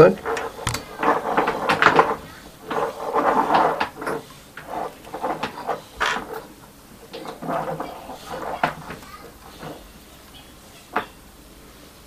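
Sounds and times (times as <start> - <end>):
hand tools knocking and clicking: 0.6 - 1.2.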